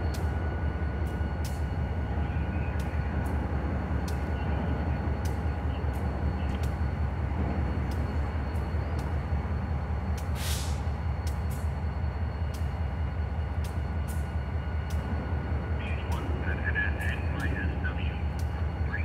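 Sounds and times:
diesel locomotive idling: 0.0s - 19.0s
faint sharp clicks: 4.0s - 4.3s, 5.2s - 5.4s, 11.2s - 11.6s, 12.4s - 12.8s, 13.5s - 15.1s, 18.3s - 18.6s
brief hiss: 10.3s - 10.9s.

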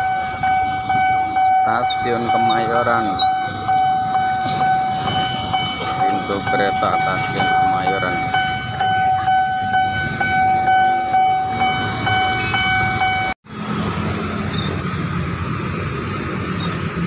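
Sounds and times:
level crossing warning tone: 0.0s - 13.4s
traffic rumble: 0.0s - 17.0s.

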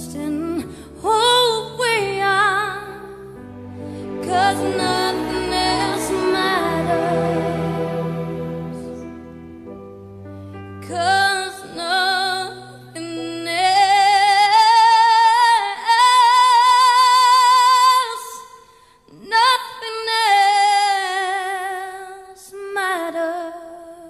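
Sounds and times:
woman singing with vibrato: 4.1s - 8.0s, 10.8s - 24.0s.

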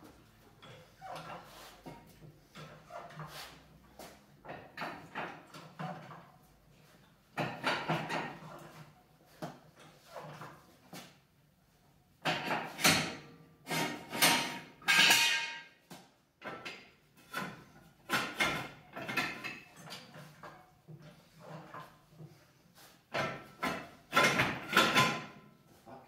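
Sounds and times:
floor jack clanking and scraping: 12.2s - 15.7s, 16.4s - 25.5s.

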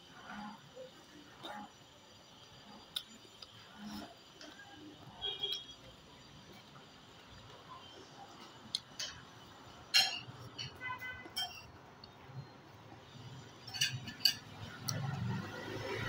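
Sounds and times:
fork clinking on ceramic plate: 9.9s - 11.7s, 13.6s - 14.6s.

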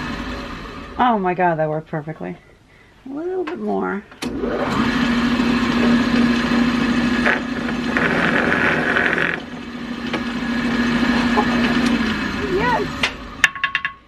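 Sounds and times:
drill press motor humming: 4.2s - 13.4s
drill bit boring into wood: 4.6s - 13.1s.

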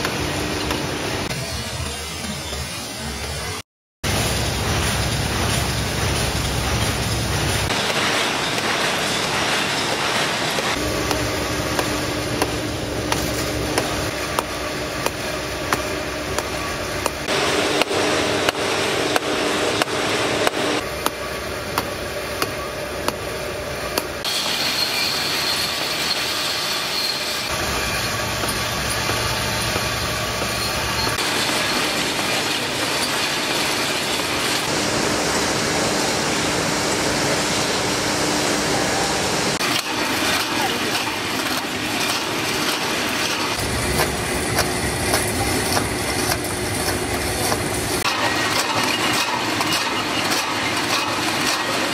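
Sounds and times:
machine hum: 4.1s - 25.1s, 27.4s - 51.9s
clicks and clatter of conveyors: 39.6s - 51.9s.

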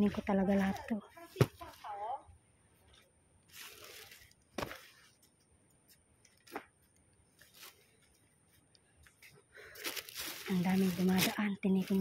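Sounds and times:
clothes and plastic bags rustling: 0.0s - 2.2s, 2.9s - 12.0s
plastic bag crackles: 3.5s - 4.4s, 9.7s - 12.0s.

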